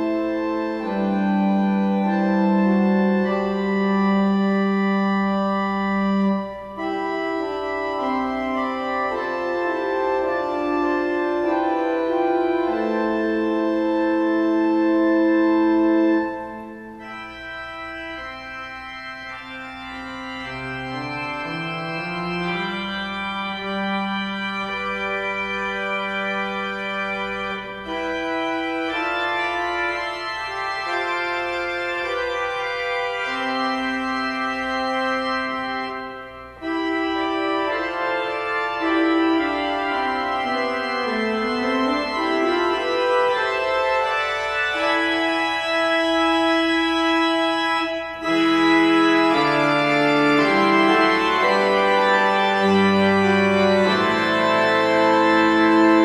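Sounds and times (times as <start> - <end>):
pipe organ sustained chords: 0.0 - 56.0.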